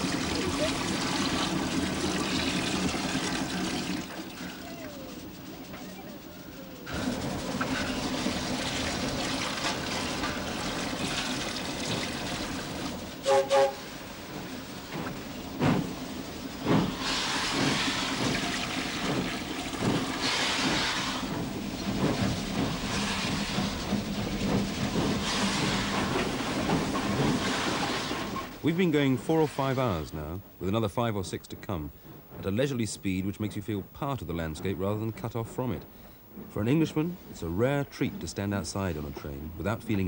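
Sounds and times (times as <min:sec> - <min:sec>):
steam whistle blasts: 0:13.2 - 0:13.9
exhaust steam bursts: 0:15.5 - 0:33.4.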